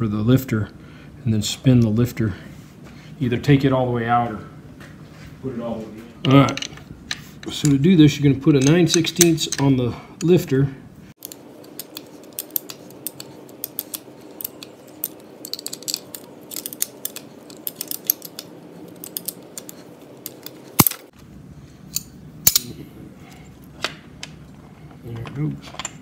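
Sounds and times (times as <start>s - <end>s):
wrench clinking on metal: 6.3s - 10.4s, 11.2s - 21.1s.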